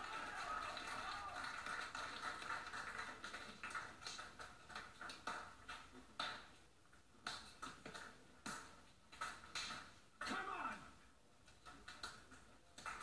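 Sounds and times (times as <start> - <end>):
people applauding through tv speaker: 0.0 - 5.2.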